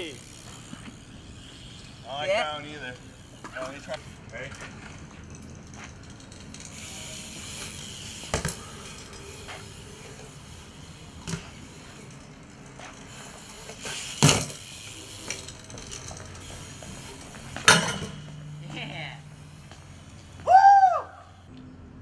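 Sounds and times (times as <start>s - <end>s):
bike tyres rolling on concrete: 0.0s - 21.5s
bike knocking on ground: 7.6s - 9.6s, 13.7s - 18.9s.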